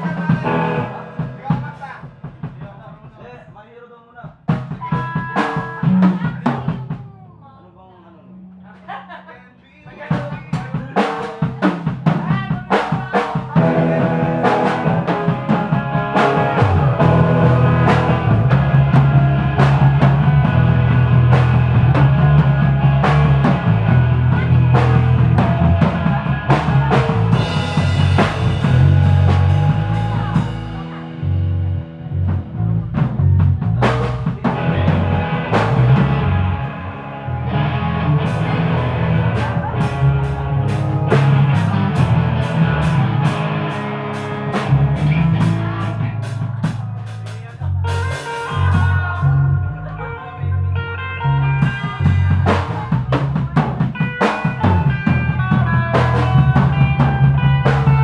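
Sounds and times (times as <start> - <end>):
electric guitars: 0.0 - 1.8, 10.1 - 58.0
bass guitar: 0.0 - 3.4, 4.3 - 58.0
drum hits: 0.0 - 3.6, 10.0 - 36.8, 37.4 - 47.2.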